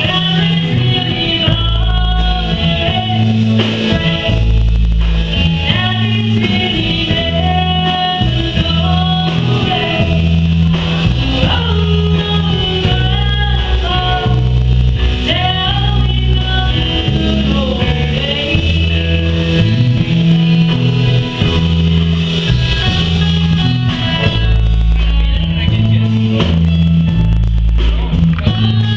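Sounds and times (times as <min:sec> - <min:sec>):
woman singing country song: 0:00.0 - 0:04.6, 0:05.3 - 0:28.9
amplified accompaniment: 0:00.0 - 0:28.9
bass line: 0:00.0 - 0:28.9.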